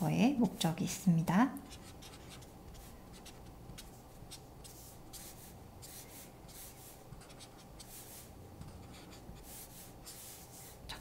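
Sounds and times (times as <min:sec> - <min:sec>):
marker strokes on paper: 0:01.7 - 0:11.0.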